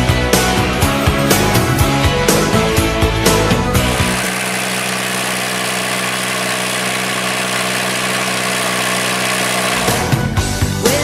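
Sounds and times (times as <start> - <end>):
diesel engine running: 3.3 - 10.6.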